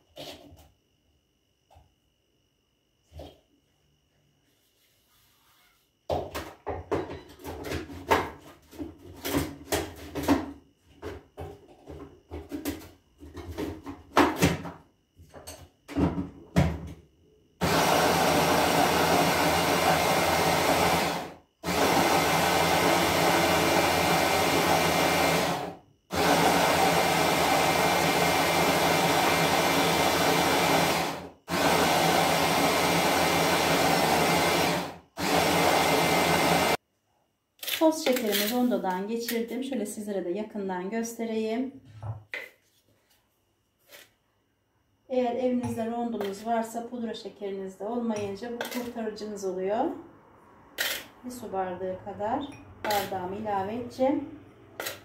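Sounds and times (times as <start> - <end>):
hand blender grinding sugar: 17.6 - 36.8, 52.9 - 53.2, 54.8 - 55.0.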